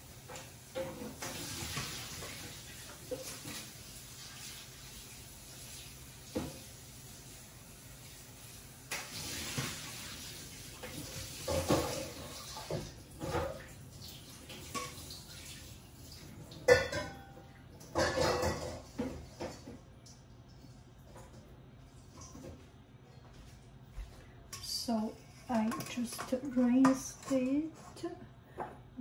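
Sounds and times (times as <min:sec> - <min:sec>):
water running and splashing: 0:00.0 - 0:17.1
dishes and utensils clinking: 0:10.8 - 0:13.7, 0:14.5 - 0:15.3, 0:16.4 - 0:19.8, 0:24.5 - 0:28.8.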